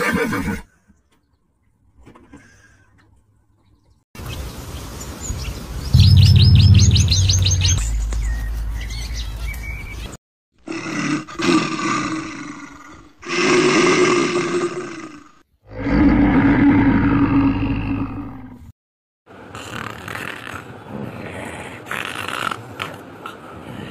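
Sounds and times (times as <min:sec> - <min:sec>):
low rumble: 0:06.0 - 0:09.4
songbird trilling: 0:06.0 - 0:10.0
large animal roaring: 0:10.6 - 0:18.7.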